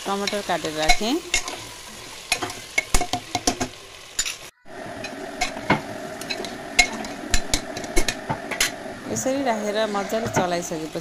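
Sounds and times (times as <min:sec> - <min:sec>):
soft sizzle of frying: 0:00.0 - 0:11.0
spatula scraping a pot: 0:05.4 - 0:11.0.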